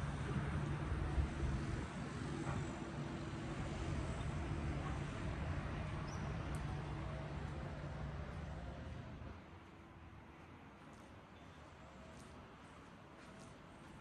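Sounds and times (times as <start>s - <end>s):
distant traffic: 0.0s - 14.0s.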